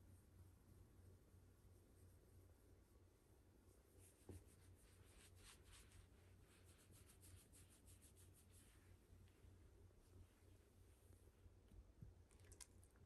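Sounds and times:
hand rubbing dog fur: 0:03.7 - 0:11.2.

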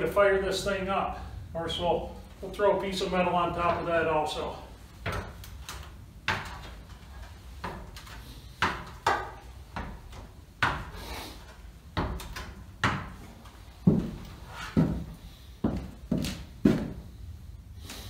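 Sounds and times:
feet knocking on ladder rungs: 0:03.0 - 0:17.2.

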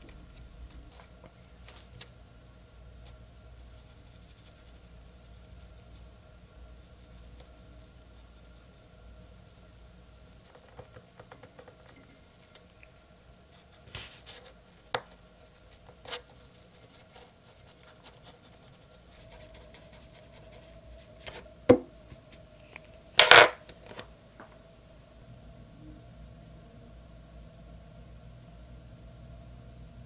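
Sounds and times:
brush scratching and tapping paper: 0:00.0 - 0:02.2, 0:03.0 - 0:08.8, 0:10.4 - 0:12.8, 0:13.5 - 0:21.4.

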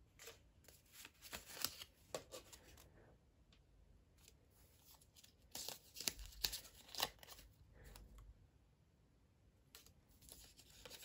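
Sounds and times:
paper cards rustling: 0:00.1 - 0:02.9, 0:04.2 - 0:08.1, 0:09.8 - 0:11.0.

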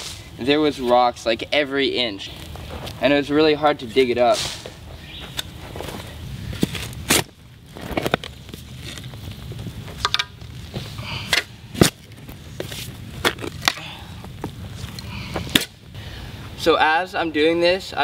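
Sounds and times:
spade crunching into soil: 0:06.6 - 0:09.2.

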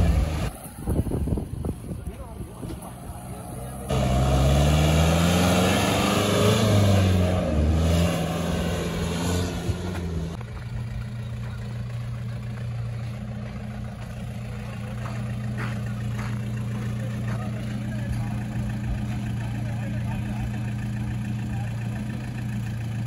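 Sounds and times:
jeep engine revving: 0:00.0 - 0:00.7, 0:02.7 - 0:23.0
engine idling: 0:09.9 - 0:23.0.

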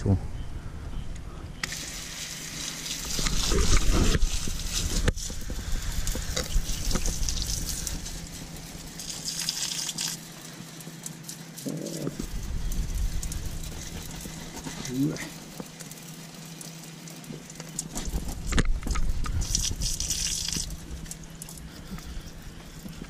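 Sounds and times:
water jet spraying on engine: 0:01.6 - 0:18.5.

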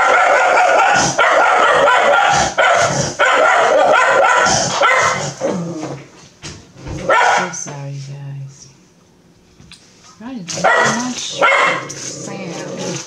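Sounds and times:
dog barking: 0:00.0 - 0:05.4, 0:07.0 - 0:07.6, 0:10.5 - 0:12.0.

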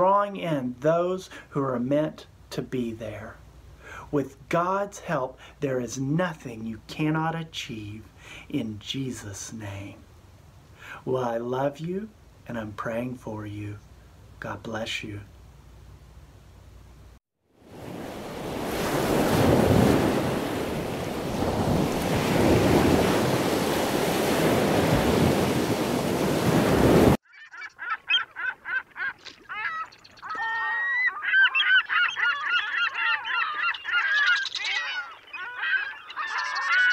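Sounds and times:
flock of birds calling: 0:27.3 - 0:36.9.

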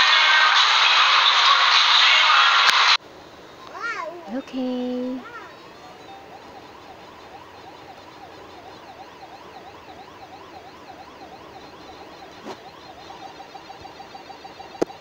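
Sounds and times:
warbling electronic siren tone: 0:05.5 - 0:15.0.

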